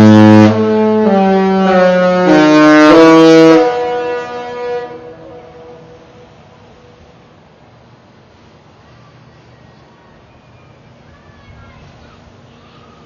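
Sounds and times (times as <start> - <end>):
musical ship's horn: 0.0 - 6.4.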